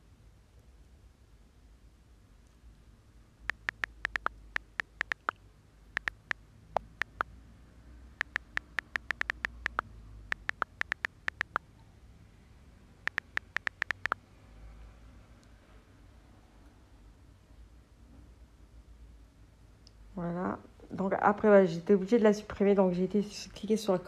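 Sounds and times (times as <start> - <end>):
faint low room rumble: 0.0 - 8.9, 14.1 - 24.0
phone keyboard clicks: 3.5 - 5.4, 6.0 - 7.2, 8.2 - 11.6, 13.1 - 14.2.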